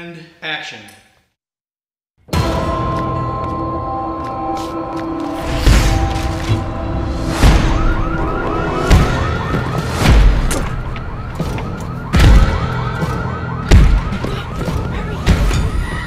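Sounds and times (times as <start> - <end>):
warbling alarm siren: 6.2 - 16.0
door being kicked: 8.9 - 15.7.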